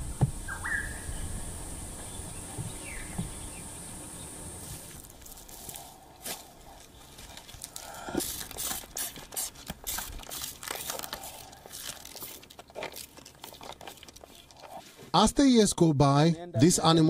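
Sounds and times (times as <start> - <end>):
plastic bottle crinkling: 4.9 - 15.1.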